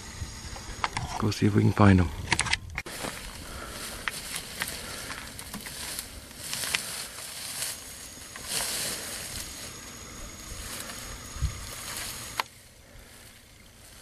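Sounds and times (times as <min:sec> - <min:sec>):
twigs cracking: 0:02.3 - 0:14.0
rustling through dry brush: 0:02.8 - 0:14.0.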